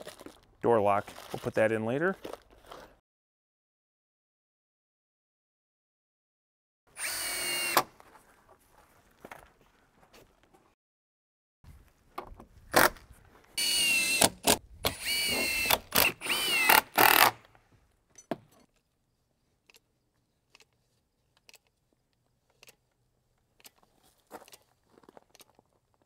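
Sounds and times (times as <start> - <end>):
cordless drill driving screws: 7.0 - 7.9, 13.6 - 17.5.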